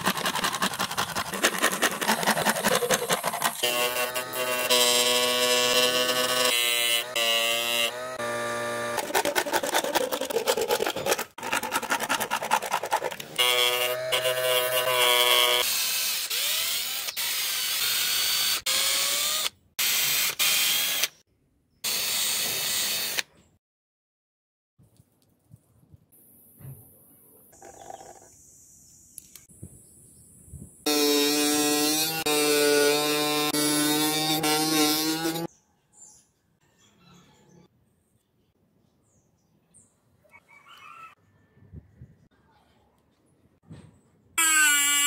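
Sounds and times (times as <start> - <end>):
sanding disc grinding plastic: 0.0 - 7.2, 7.9 - 15.6.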